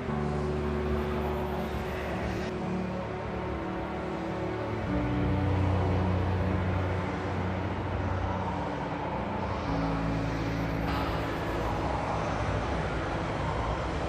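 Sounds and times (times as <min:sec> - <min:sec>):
low drone chord music: 0:00.0 - 0:14.0.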